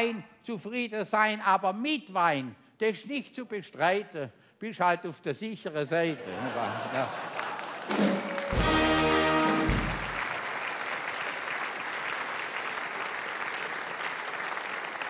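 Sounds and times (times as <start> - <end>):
audience applauding: 6.4 - 15.0
band playing held chord: 8.2 - 10.2.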